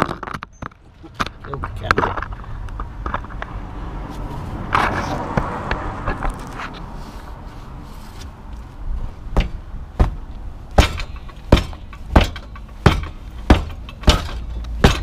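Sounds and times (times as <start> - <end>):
boot kicking metal arm: 9.3 - 15.0.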